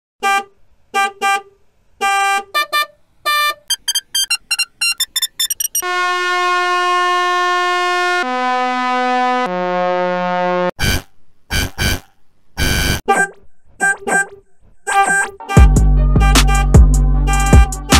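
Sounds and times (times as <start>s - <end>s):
truck horn blast: 0.2s - 3.7s, 5.8s - 17.9s
car horn beeping: 0.2s - 5.0s, 5.8s - 8.1s, 12.6s - 17.9s.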